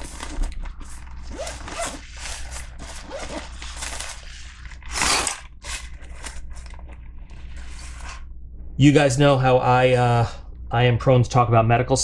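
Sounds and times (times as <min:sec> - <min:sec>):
nylon bag and packets rustling: 0:00.0 - 0:06.7.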